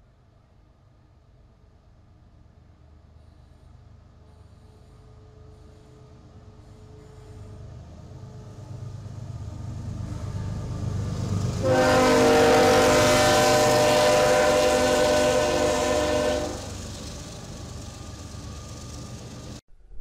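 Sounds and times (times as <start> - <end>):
train rumbling: 0.0 - 20.0
freight cars rumbling by: 7.0 - 19.6
locomotive air horn: 11.6 - 16.8.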